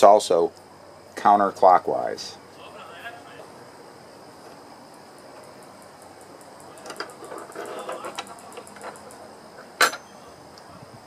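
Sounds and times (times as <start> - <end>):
light metallic clicks and rattles: 6.8 - 10.6.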